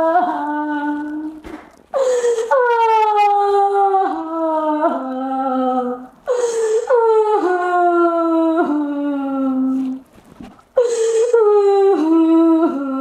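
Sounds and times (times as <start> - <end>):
sharp gasping breath: 1.9 - 2.5, 6.3 - 6.9, 10.8 - 11.3
woman wailing: 2.5 - 4.0.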